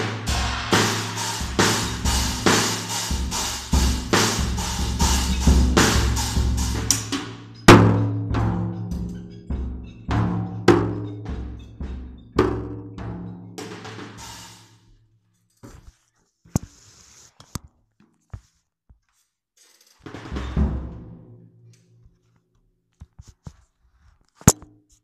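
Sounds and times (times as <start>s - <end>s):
cymbal wash: 0.0s - 14.8s
drum kit hits: 0.0s - 14.8s, 20.1s - 21.3s.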